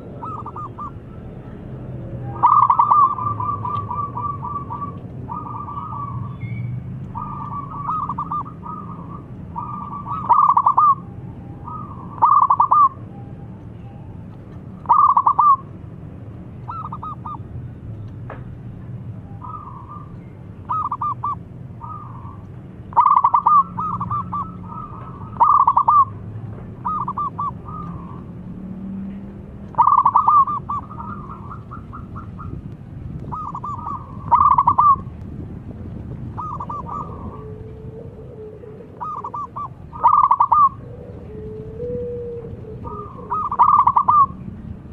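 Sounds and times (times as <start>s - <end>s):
dove cooing: 0.0s - 1.5s, 2.2s - 13.0s, 14.8s - 15.7s, 16.7s - 17.4s, 19.4s - 28.4s, 29.7s - 32.6s, 33.2s - 35.1s, 36.3s - 44.5s.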